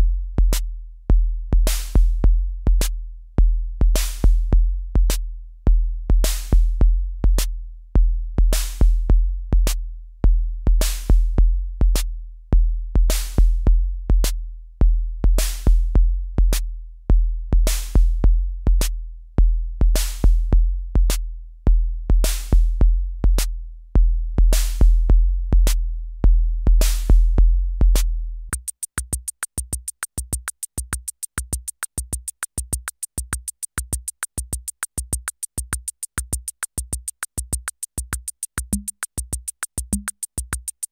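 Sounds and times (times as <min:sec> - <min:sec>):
fast bright hi-hat ticks: 0:28.0 - 0:40.9.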